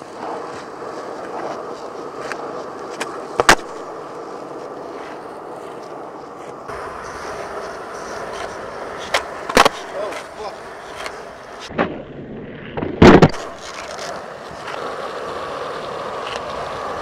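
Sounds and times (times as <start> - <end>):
skateboard wheels rolling: 0.0 - 17.0
skateboard tail snap: 0.2 - 4.0, 5.0 - 12.0, 12.8 - 15.0, 16.1 - 16.9
skateboard landing clack: 2.2 - 3.9, 8.3 - 14.9.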